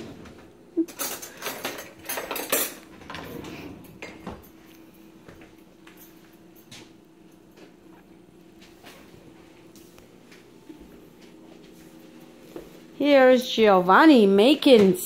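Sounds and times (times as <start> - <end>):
cutlery clattering in drawer: 0.2 - 4.5.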